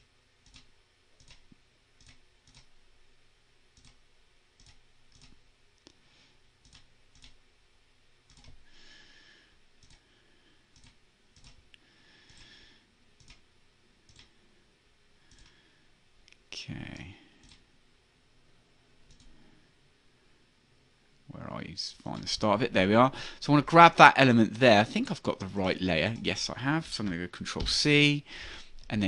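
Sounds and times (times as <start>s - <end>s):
computer mouse clicks: 0.4s - 2.7s, 3.8s - 4.0s, 4.6s - 6.0s, 6.6s - 7.4s, 8.3s - 8.6s, 9.8s - 10.0s, 10.7s - 12.5s, 13.2s - 13.4s, 14.1s - 14.3s, 15.3s - 15.6s, 16.3s - 17.6s, 19.1s - 19.4s.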